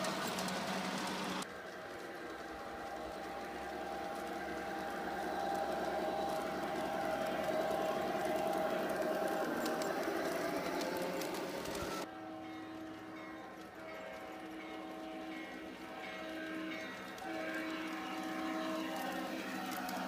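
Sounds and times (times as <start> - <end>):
model train motor whining: 0.0 - 20.0
train wheels rattling: 0.0 - 20.0.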